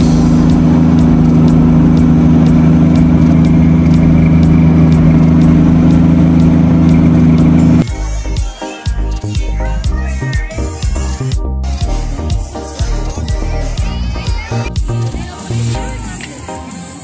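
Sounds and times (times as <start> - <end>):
road traffic engine hum: 0.0 - 8.2
music: 0.0 - 17.0.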